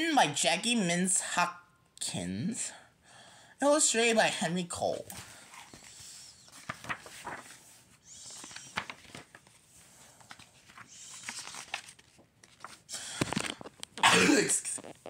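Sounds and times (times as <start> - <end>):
paper pages rustling: 5.0 - 14.0.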